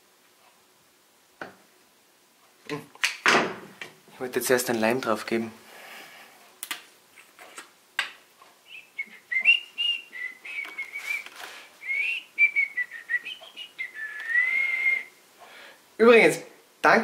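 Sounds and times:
person whistling: 0:08.7 - 0:15.2.

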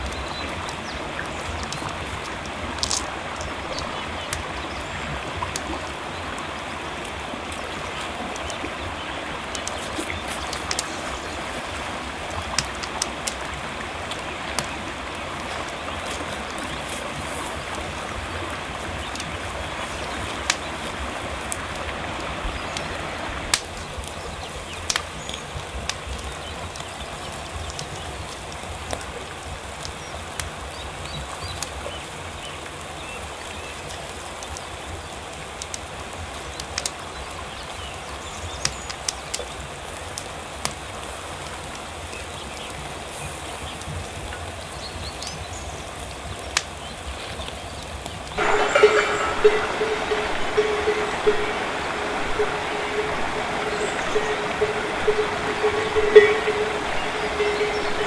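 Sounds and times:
fish grilling over crackling coals: 0:02.0 - 0:03.5
river water rushing: 0:48.4 - 0:58.0.

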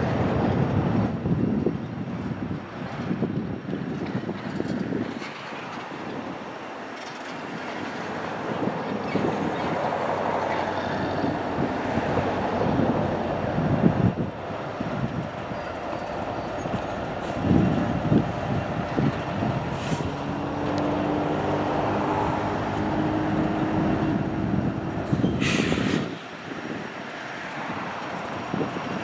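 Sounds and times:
diesel locomotive engines running: 0:00.0 - 0:29.0
train wheels clacking over rails: 0:04.0 - 0:06.1.

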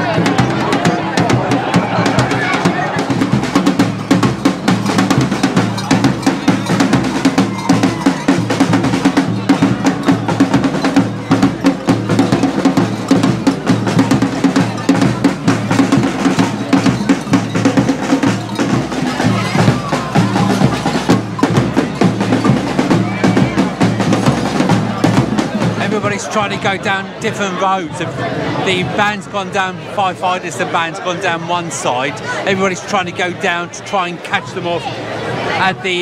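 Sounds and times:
drum band playing loud beat: 0:00.0 - 0:28.0, 0:28.6 - 0:36.0.

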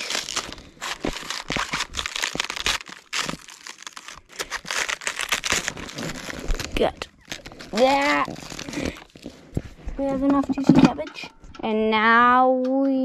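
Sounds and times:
knife cutting cabbage: 0:00.0 - 0:06.6
cabbage leaves crunching: 0:00.0 - 0:09.0.

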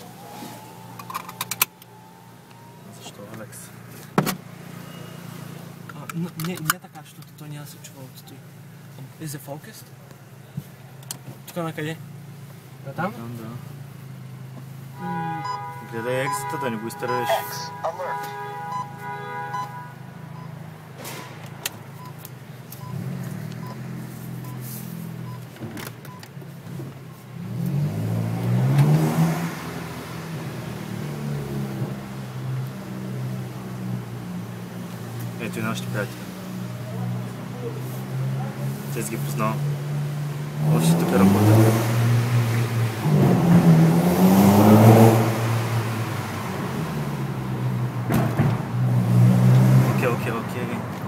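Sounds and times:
car engine accelerating: 0:26.6 - 0:51.0.

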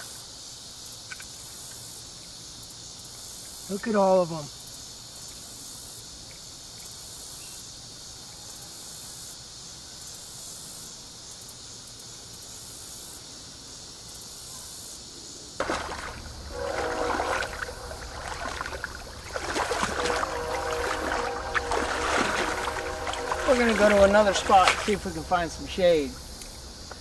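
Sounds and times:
background music: 0:15.6 - 0:26.2
pulsing insect buzzing: 0:15.6 - 0:27.0.

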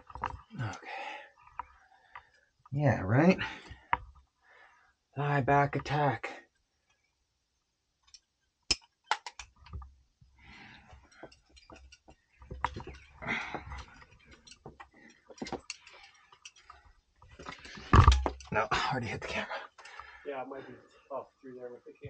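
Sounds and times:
climbing gear tapping on rock: 0:08.0 - 0:20.2.

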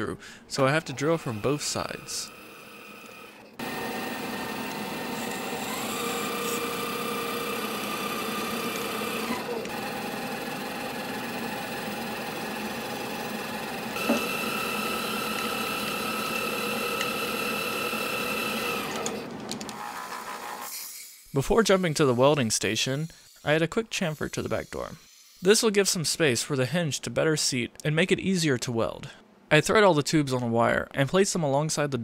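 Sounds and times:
lathe motor whine: 0:00.6 - 0:20.4.

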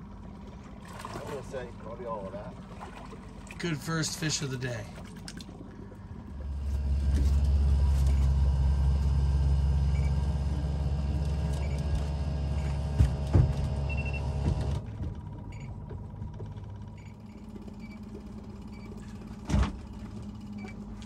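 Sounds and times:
outboard motor running: 0:00.0 - 0:21.0.

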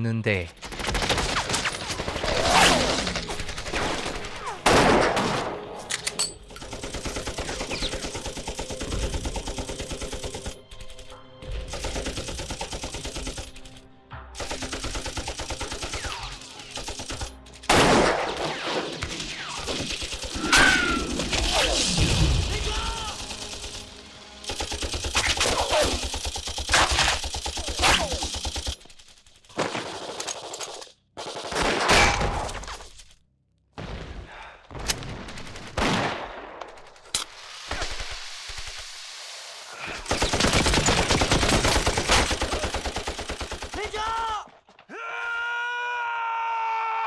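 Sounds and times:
rifle and machine-gun fire: 0:00.6 - 0:05.7, 0:06.7 - 0:10.5, 0:14.4 - 0:21.6, 0:22.7 - 0:28.8, 0:31.2 - 0:32.4, 0:35.0 - 0:37.0, 0:40.1 - 0:44.3.

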